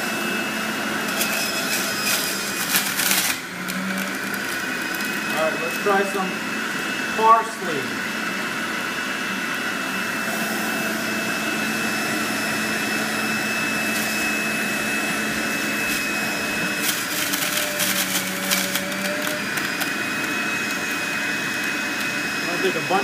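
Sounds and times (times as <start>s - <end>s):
juicer motor whining: 0.0s - 23.0s
crackling rattle of herbs being juiced: 1.0s - 6.1s, 13.8s - 23.0s.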